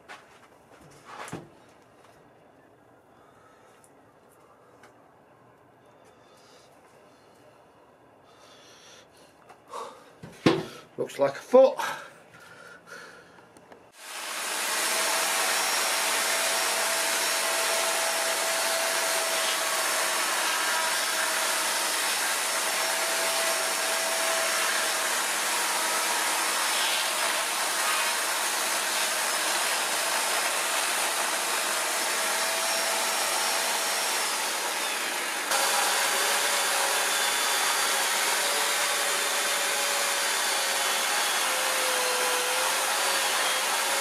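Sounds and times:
electric chainsaw motor running: 0:14.0 - 0:44.0.

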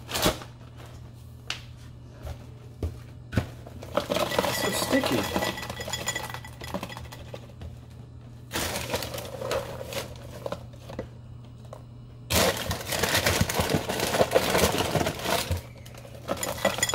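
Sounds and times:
cereal pouring into glass bowl: 0:04.0 - 0:06.5.

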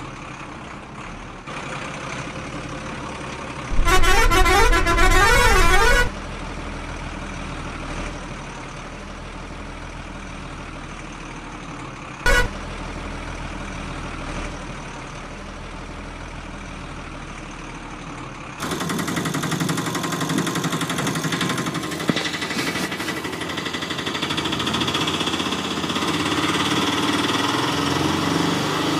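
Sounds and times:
truck engine running: 0:00.0 - 0:28.9
short horn honk: 0:03.7 - 0:06.2, 0:12.3 - 0:12.6
warbling horn tune: 0:03.7 - 0:06.2, 0:12.3 - 0:12.5
rattling small engine: 0:18.6 - 0:28.9.

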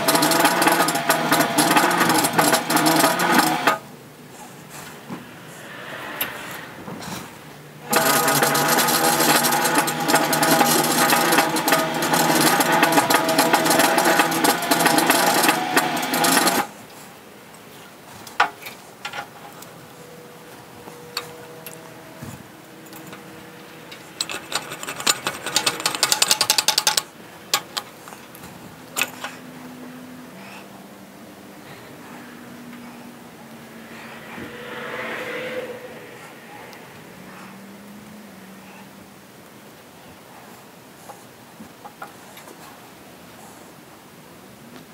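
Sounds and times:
bead roller with ringing metal: 0:07.9 - 0:16.6, 0:22.8 - 0:27.0
rapid clicking: 0:07.9 - 0:16.7, 0:23.9 - 0:27.9.

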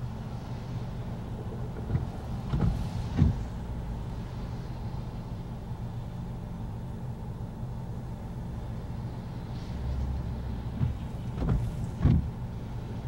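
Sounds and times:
car engine idling: 0:00.0 - 0:13.0
dull knocks: 0:10.8 - 0:12.3.

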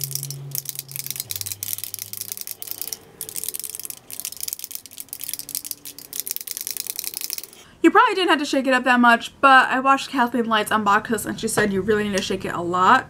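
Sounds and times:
spray bottle ball rattling: 0:00.0 - 0:07.6.

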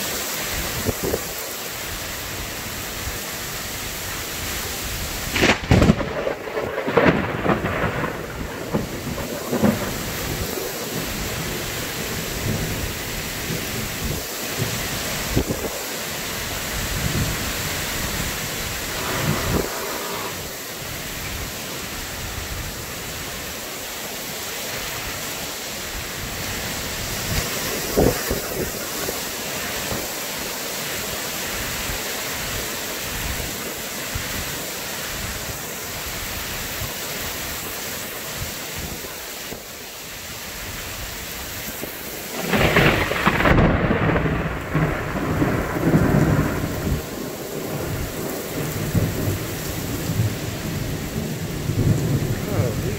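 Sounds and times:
heavy rain falling: 0:00.0 - 0:52.9
loud thunder: 0:05.3 - 0:11.0, 0:18.6 - 0:20.9, 0:42.3 - 0:52.9.

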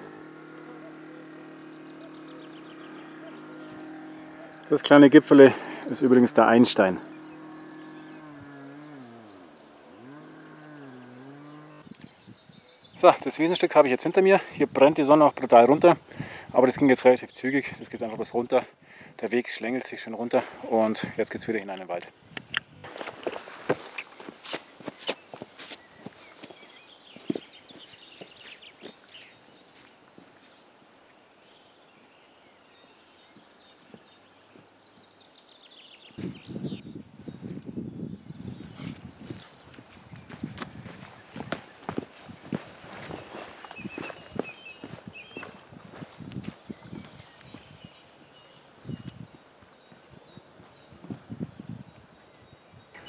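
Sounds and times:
faint low hum: 0:00.0 - 0:11.9
insects chirring: 0:00.0 - 0:53.0
footsteps on rocky dirt trail: 0:22.6 - 0:30.7, 0:38.6 - 0:51.3.

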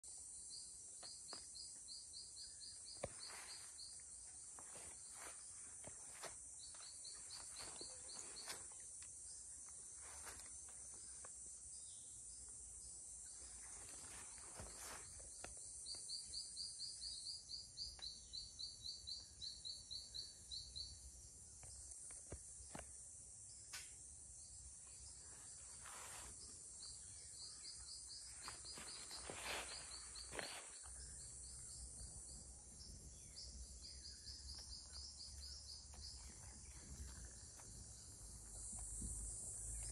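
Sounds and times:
high insect drone: 0:00.1 - 0:39.9.

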